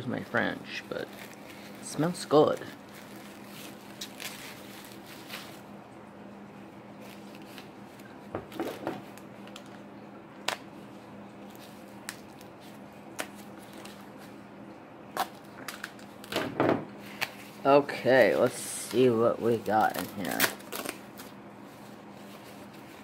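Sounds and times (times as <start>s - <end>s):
steady low hum: 0.0s - 23.0s
packaging rustling: 0.2s - 5.7s, 7.0s - 9.8s, 11.4s - 14.3s, 17.0s - 23.0s.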